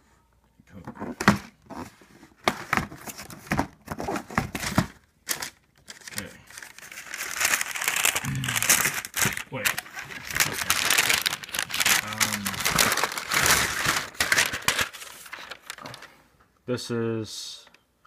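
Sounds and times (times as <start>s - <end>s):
tissue paper rustling: 4.0s - 16.1s.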